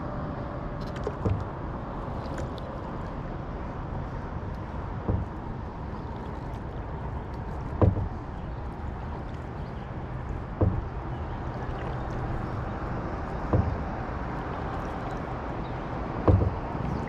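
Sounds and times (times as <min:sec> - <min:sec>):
water rushing: 0:00.0 - 0:17.0
paddle knocks: 0:00.9 - 0:01.6, 0:04.6 - 0:17.0.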